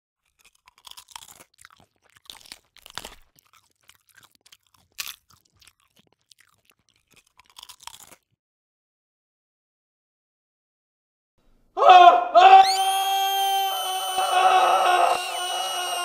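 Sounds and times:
chips being chewed: 0.2 - 8.4.

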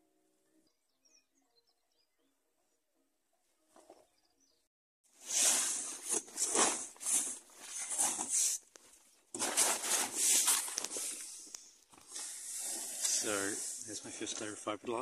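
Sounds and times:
plastic tarpaulin rustling: 5.1 - 15.0.

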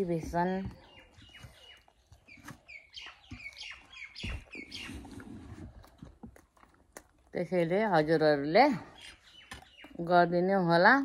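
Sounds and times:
birds chirping: 0.0 - 11.0
crisp food crunching: 1.0 - 7.9.

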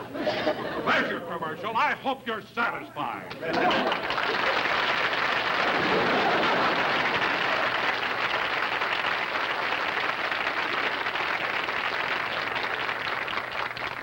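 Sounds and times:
studio audience applauding: 3.3 - 14.0.

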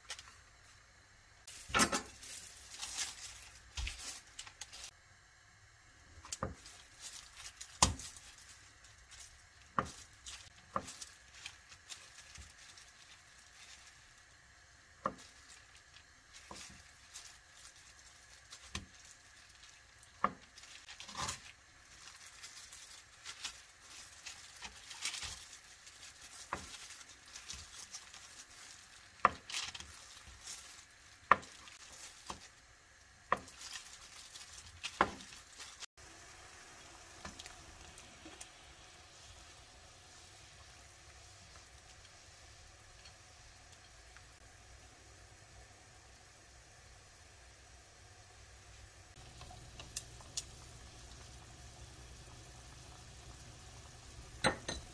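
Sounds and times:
water simmering in pan: 35.8 - 54.9.

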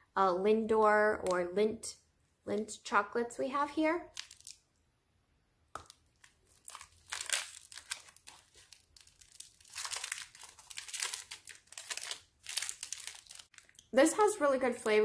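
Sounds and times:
wrapper crinkling: 4.1 - 4.6, 5.8 - 14.0.

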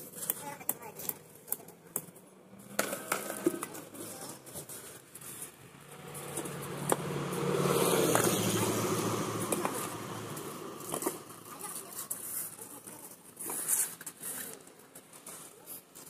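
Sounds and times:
engine hum: 5.2 - 12.2.

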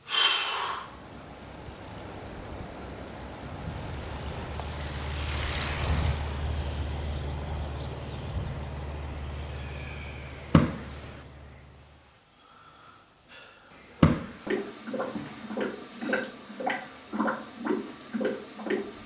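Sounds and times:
vehicle engine running: 0.9 - 12.1.

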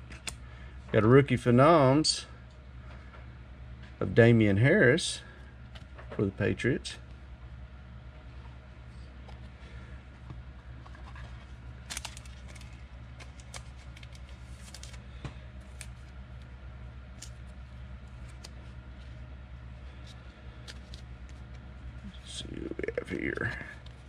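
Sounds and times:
low hum: 0.0 - 24.0
trading cards flipped by hand: 10.9 - 16.5, 17.1 - 19.2, 19.9 - 21.6.

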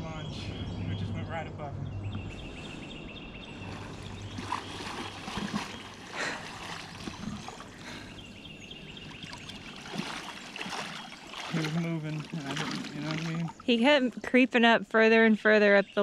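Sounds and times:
water sloshing around wading legs: 3.5 - 13.8.

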